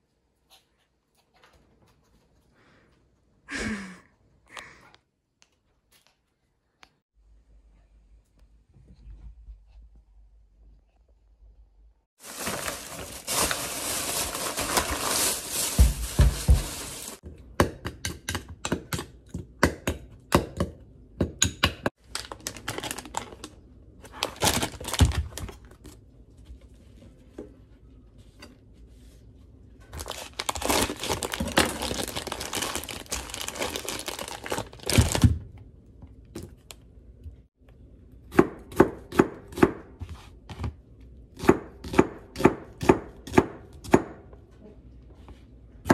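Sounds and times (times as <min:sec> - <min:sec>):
plastic bags rustling: 0:12.2 - 0:17.2, 0:22.1 - 0:25.8, 0:29.8 - 0:35.4.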